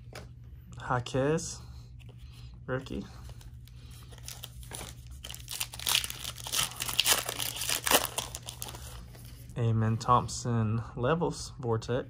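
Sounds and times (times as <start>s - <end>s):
plastic wrapper tearing and crinkling: 4.1s - 9.0s.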